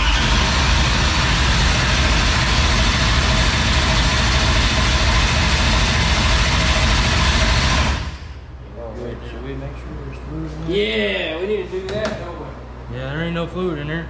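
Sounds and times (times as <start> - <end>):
car engine running loudly: 0.0 - 8.4.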